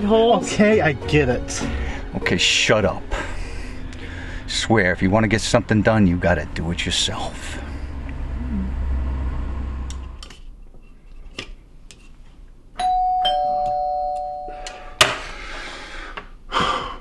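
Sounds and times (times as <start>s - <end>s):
two-tone doorbell chime: 12.8s - 15.0s.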